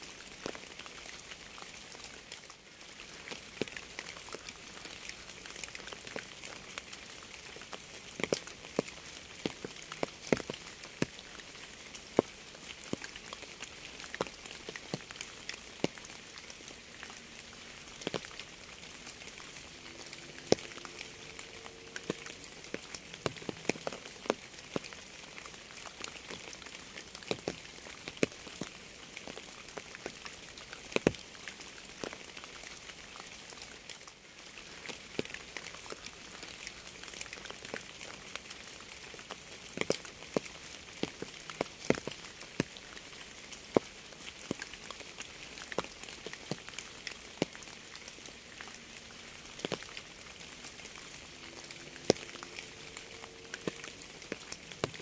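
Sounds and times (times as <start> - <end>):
raindrops striking a surface: 0.0 - 55.0
rain hissing: 2.9 - 26.3, 48.3 - 55.0.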